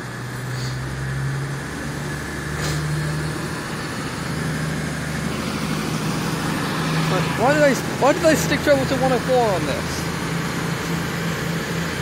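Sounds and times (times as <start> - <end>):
diesel train engine hum: 0.0 - 12.0.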